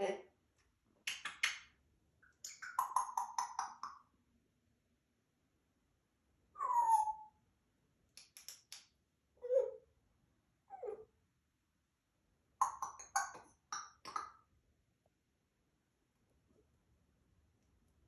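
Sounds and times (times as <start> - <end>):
parrot clicks: 8.2 - 8.9.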